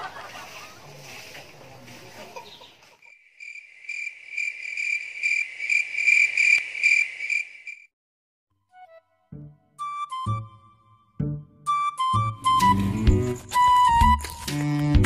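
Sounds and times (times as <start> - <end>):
crickets chirping: 3.1 - 7.9.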